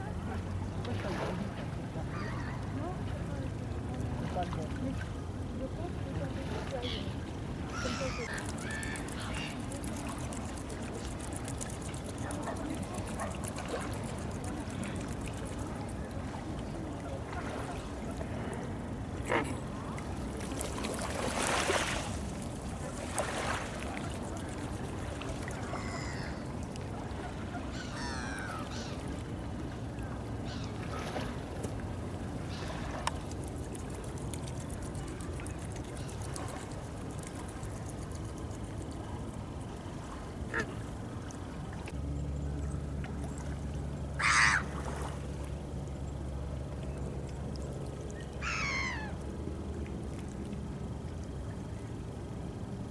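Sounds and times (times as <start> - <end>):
low steady hum: 0.0 - 52.9
open water background: 0.0 - 52.9
waterbird calls: 2.0 - 3.1, 6.4 - 49.4.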